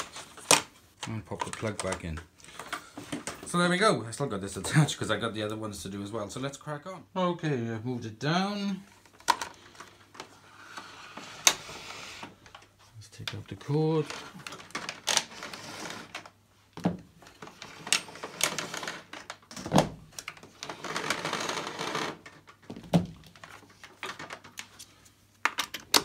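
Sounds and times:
power cord rustling and sliding: 0:13.7 - 0:16.4.

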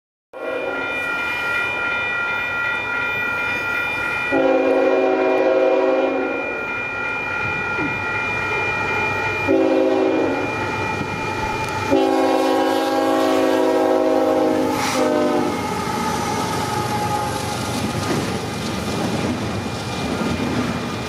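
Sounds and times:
locomotive air horn: 0:00.4 - 0:00.8, 0:04.3 - 0:06.6, 0:09.5 - 0:10.5, 0:11.5 - 0:17.6
steady high-pitched tone: 0:00.4 - 0:17.8.

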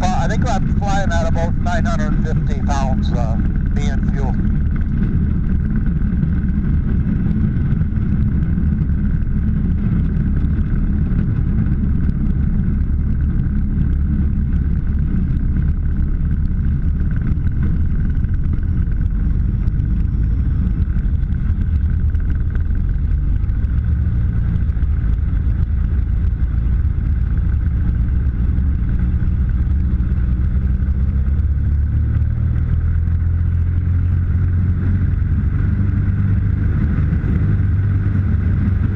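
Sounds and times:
aircraft engine and propeller: 0:00.0 - 0:38.9.

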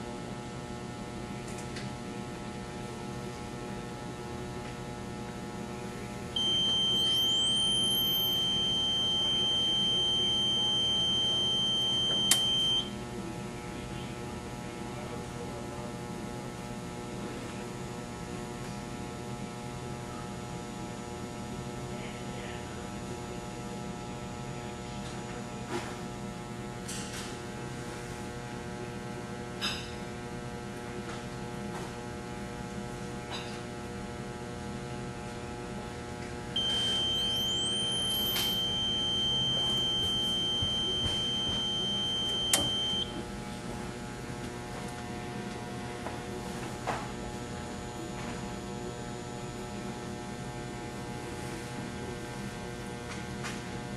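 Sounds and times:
electrical hum: 0:00.0 - 0:53.9
high beep: 0:06.4 - 0:12.9, 0:36.6 - 0:43.2.

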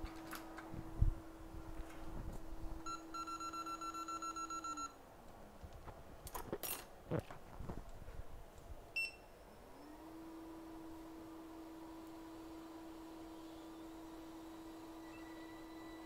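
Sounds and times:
short beep: 0:02.8 - 0:04.9
hot-air blower humming: 0:09.6 - 0:16.0.

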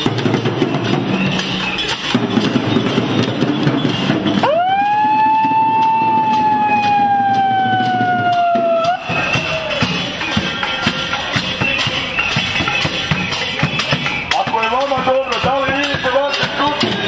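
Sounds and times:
dense noisy din: 0:00.0 - 0:17.0
megaphone siren sweeping tone: 0:04.4 - 0:09.5.

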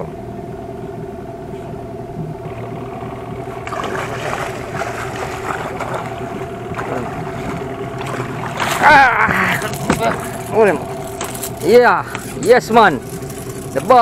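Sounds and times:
boat engine idling: 0:00.0 - 0:14.0
fish thrashing and splashing: 0:03.6 - 0:11.6.

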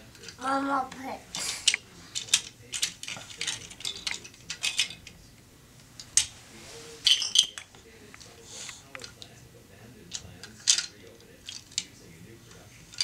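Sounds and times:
plastic toy blocks clicking: 0:01.3 - 0:05.2, 0:10.1 - 0:11.9.

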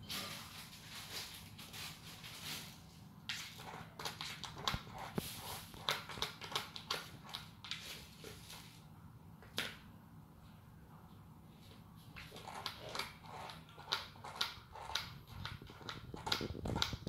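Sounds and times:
cat scratching in cat litter: 0:00.1 - 0:08.8, 0:12.2 - 0:17.0.

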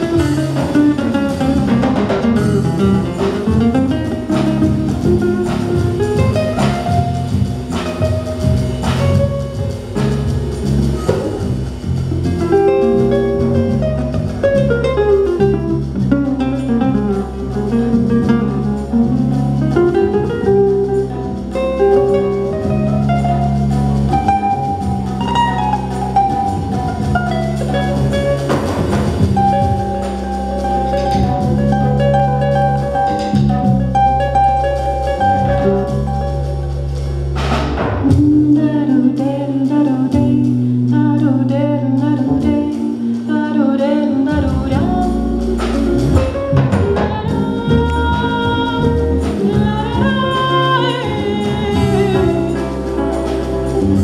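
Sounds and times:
acoustic guitar melody: 0:00.0 - 0:54.0
electric bass notes: 0:00.0 - 0:54.0
light percussion: 0:00.0 - 0:54.0.

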